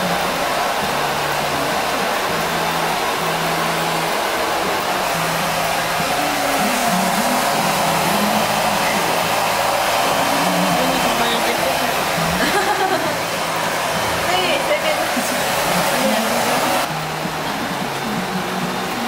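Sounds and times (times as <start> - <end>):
loud rushing of blown air: 0.0 - 12.4
faint voices: 0.0 - 19.0.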